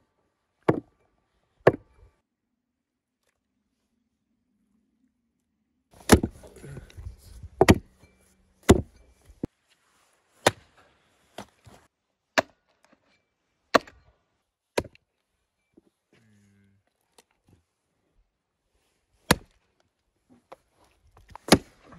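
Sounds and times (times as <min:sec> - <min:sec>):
hatchet chopping bone: 0:01.7 - 0:01.9, 0:06.0 - 0:06.6, 0:07.6 - 0:07.9, 0:08.6 - 0:09.0, 0:13.8 - 0:14.0, 0:14.8 - 0:15.0, 0:19.3 - 0:19.6, 0:21.4 - 0:21.7.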